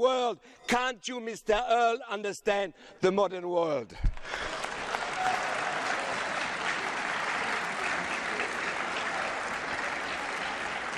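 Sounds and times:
crowd applauding: 4.1 - 10.9.

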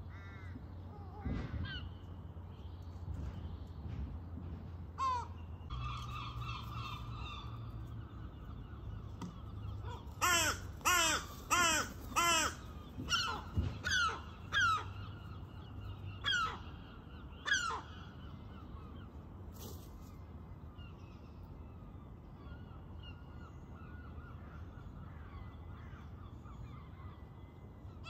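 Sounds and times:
crow cawing: 0.1 - 0.6, 10.2 - 14.9.

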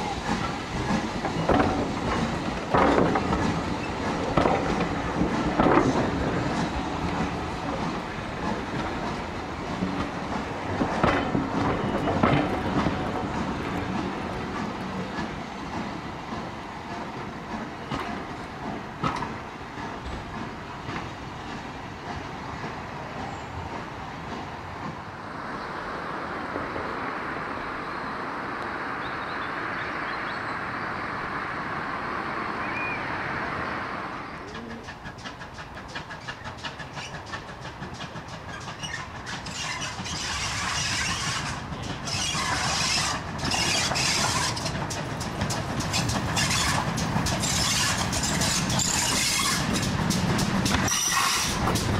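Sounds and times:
steam hissing: 0.0 - 21.7, 33.2 - 51.9
steam locomotive beats: 0.0 - 25.3, 32.8 - 51.9
train coaches rolling on track: 0.0 - 51.9.

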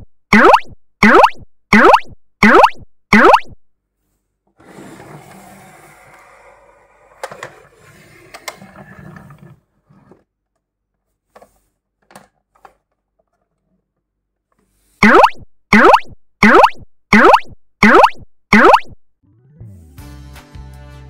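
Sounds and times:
plastic toy scraping on table: 4.6 - 10.3.

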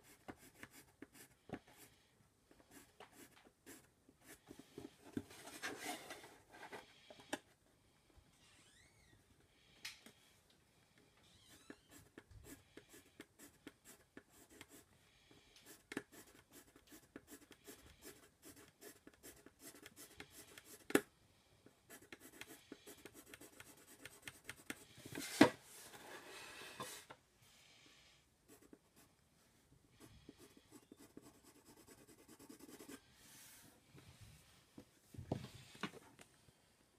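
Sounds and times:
pencil shading on paper: 29.9 - 33.0.

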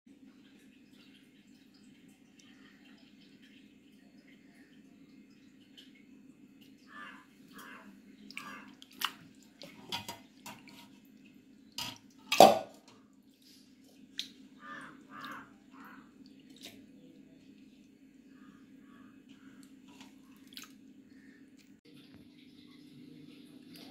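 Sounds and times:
water dripping: 0.1 - 23.9.

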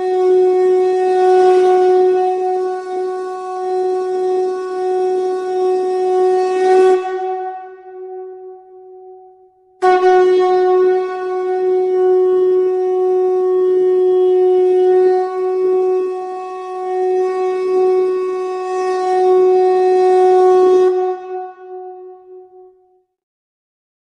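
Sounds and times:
conch shell blown: 0.0 - 23.0.

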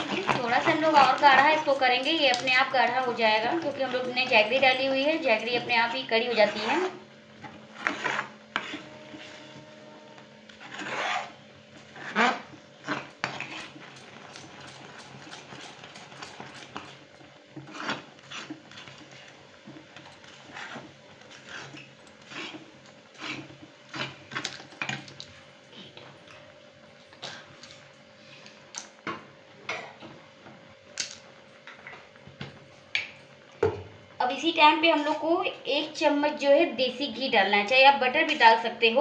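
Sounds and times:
spoon scraping thick paste in pan: 0.0 - 25.2.

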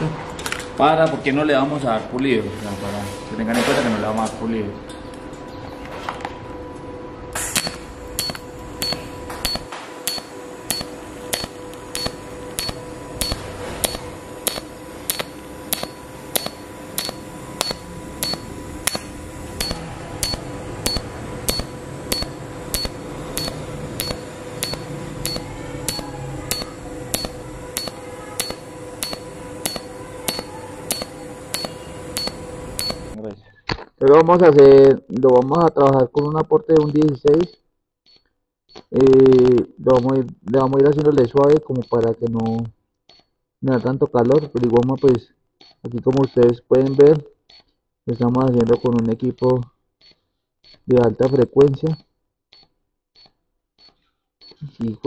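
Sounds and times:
welding arc humming and clicking: 7.3 - 33.2, 34.2 - 51.5
welding arc striking crackle: 7.4 - 33.2.

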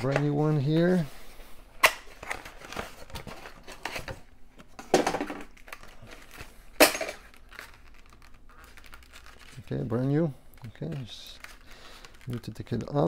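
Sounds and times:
plastic packaging crinkling: 5.5 - 13.0.

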